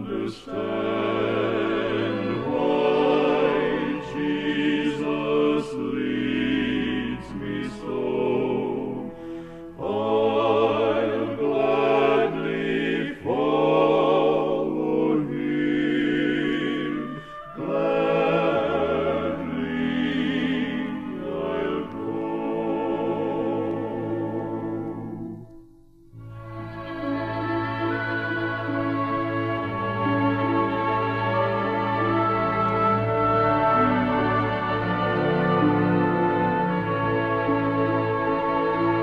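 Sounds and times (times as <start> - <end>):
male vocal quartet singing gospel: 0.0 - 25.4.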